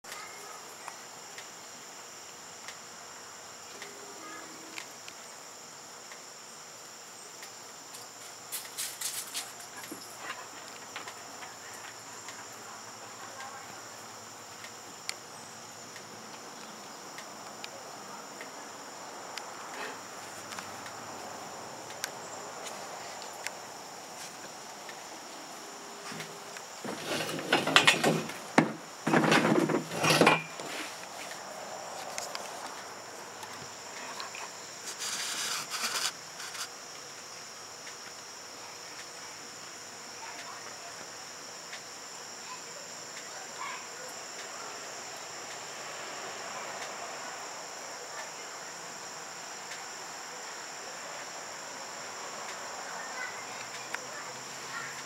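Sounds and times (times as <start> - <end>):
high-pitched insect chorus: 0.1 - 55.0
clicks and rustling: 26.1 - 31.4.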